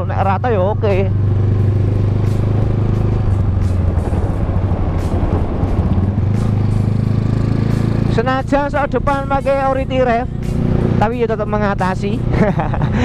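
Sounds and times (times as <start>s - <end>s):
motorcycle engine running: 0.0s - 13.0s
wind and road noise: 0.0s - 13.0s.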